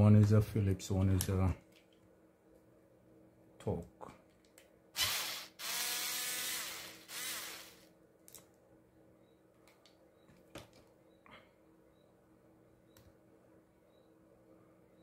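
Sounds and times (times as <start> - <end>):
electric screwdriver running: 5.0 - 7.8.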